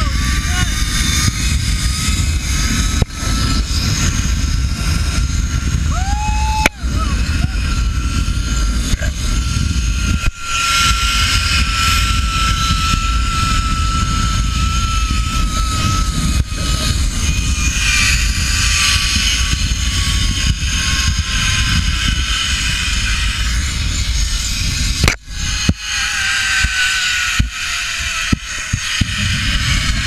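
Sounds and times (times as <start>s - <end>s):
wind rush on microphone: 0.0s - 30.0s
zip-line trolley whine: 0.0s - 30.0s.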